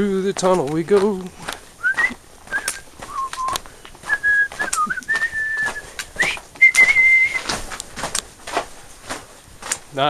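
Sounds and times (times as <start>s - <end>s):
footsteps on trail: 0.0s - 10.0s
person whistling a tune: 1.8s - 7.5s.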